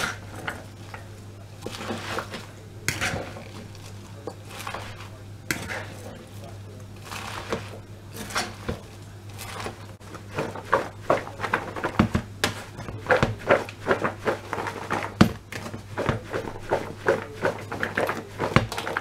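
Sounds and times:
lettuce leaves rustling: 0:00.0 - 0:19.0
steady low hum: 0:00.0 - 0:19.0
plastic bowl knocking: 0:10.1 - 0:19.0.

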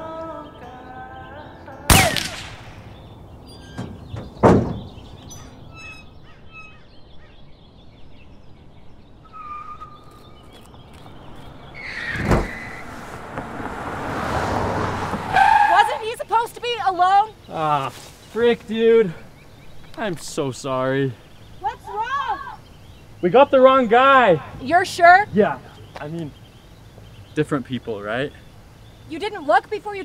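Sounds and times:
birds chirping: 0:00.0 - 0:30.0
gunshot bangs: 0:01.9 - 0:02.9.

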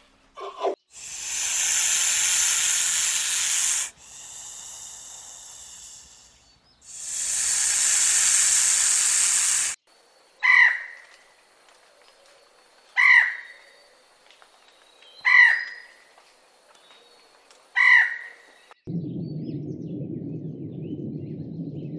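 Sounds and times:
snake hissing: 0:00.8 - 0:09.8.

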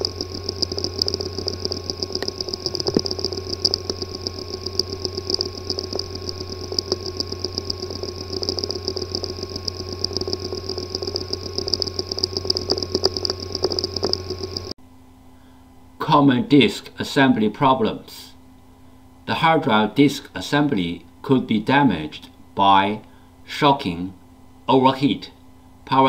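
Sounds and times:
hard disk drive clicking: 0:00.0 - 0:14.8
steady hum: 0:00.0 - 0:26.0.

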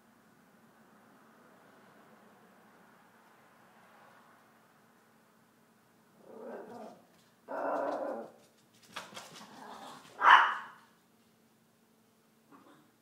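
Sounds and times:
small dog barking: 0:09.6 - 0:10.9.

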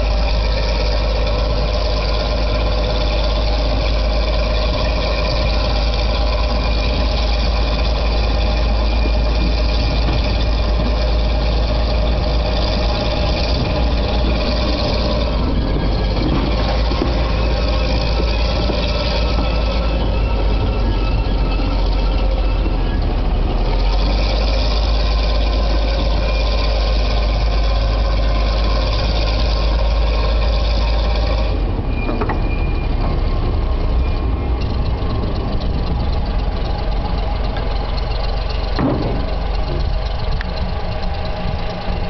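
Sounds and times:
diesel locomotive engine running: 0:00.0 - 0:42.0.

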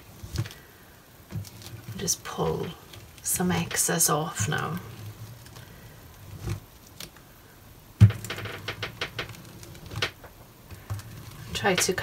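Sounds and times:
knocks: 0:08.0 - 0:09.3.

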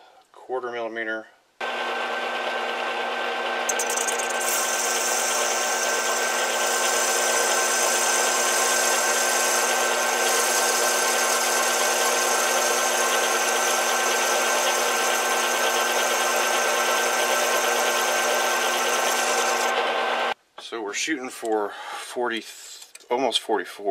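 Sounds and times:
metal lathe humming and whining: 0:01.6 - 0:20.4
hiss of metal cutting: 0:04.4 - 0:18.3.

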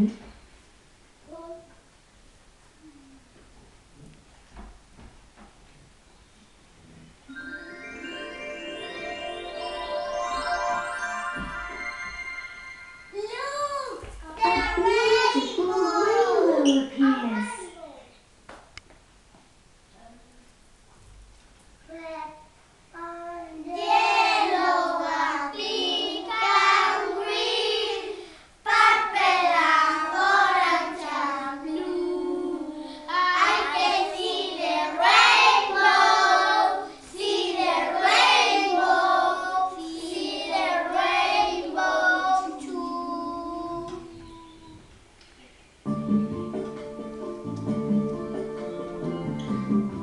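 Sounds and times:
children singing together: 0:23.0 - 0:44.9.

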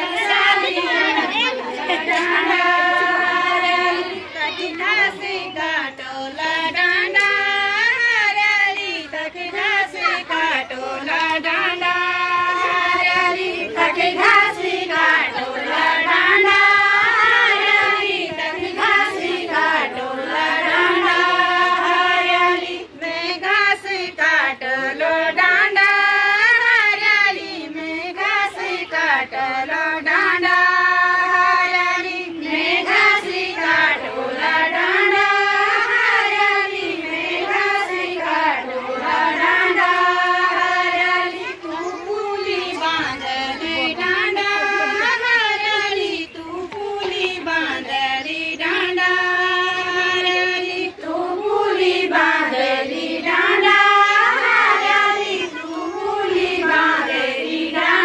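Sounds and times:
women singing in unison: 0:00.0 - 0:58.0.

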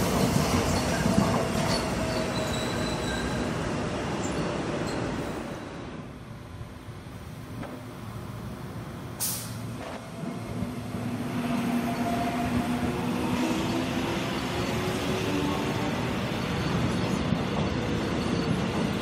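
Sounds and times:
short sharp hiss: 0:09.2 - 0:09.7.

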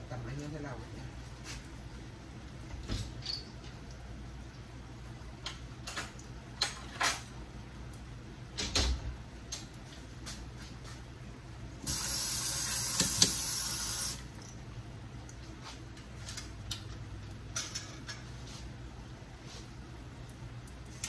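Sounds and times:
water rushing from tap: 0:11.8 - 0:14.3.

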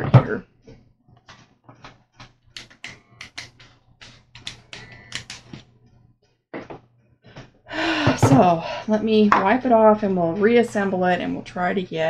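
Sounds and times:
plastic parts clicking: 0:02.6 - 0:05.6.

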